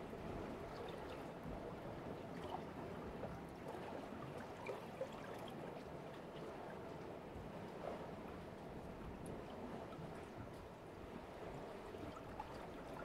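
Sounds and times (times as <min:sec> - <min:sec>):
water drips and splashes: 0:03.6 - 0:06.5.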